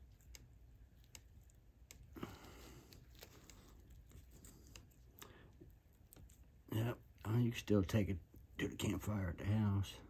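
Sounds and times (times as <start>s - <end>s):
sticky clicks of wet epoxy: 0.0s - 6.5s.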